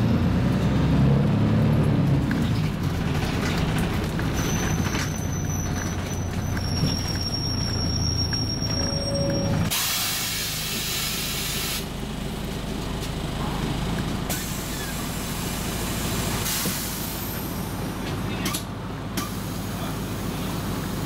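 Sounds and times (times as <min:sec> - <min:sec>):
diesel engine idling: 0:01.4 - 0:21.0
hiss of compressed air: 0:09.7 - 0:11.8, 0:16.5 - 0:17.1.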